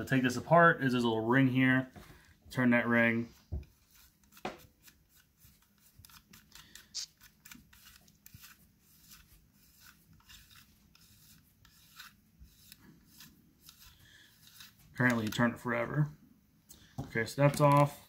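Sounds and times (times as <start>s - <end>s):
metal threads scraping and ticking: 3.8s - 15.7s.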